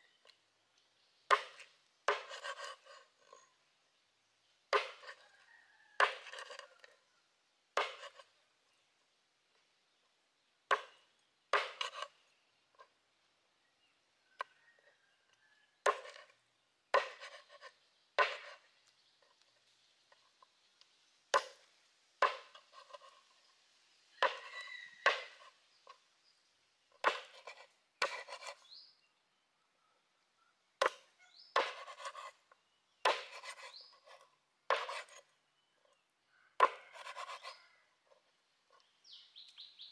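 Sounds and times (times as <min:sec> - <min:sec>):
knife chopping on wooden board: 0:01.3 - 0:02.6, 0:04.7 - 0:05.2, 0:06.0 - 0:06.6, 0:07.8 - 0:08.2, 0:10.7 - 0:12.0, 0:15.8 - 0:16.3, 0:16.9 - 0:17.5, 0:18.2 - 0:18.6, 0:22.2 - 0:23.0, 0:24.2 - 0:25.5, 0:27.0 - 0:28.6, 0:31.6 - 0:32.3, 0:33.0 - 0:33.7, 0:34.7 - 0:35.2, 0:36.6 - 0:37.5
soft scraping and handling: 0:01.5 - 0:03.6, 0:06.1 - 0:07.0, 0:22.3 - 0:23.6, 0:26.9 - 0:28.8, 0:30.9 - 0:36.0, 0:36.6 - 0:39.0.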